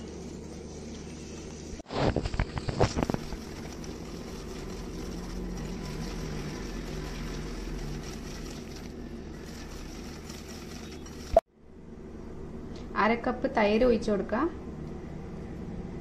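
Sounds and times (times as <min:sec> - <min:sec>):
low motor hum: 0:00.0 - 0:12.9
whisk scraping glass bowl: 0:02.5 - 0:11.4.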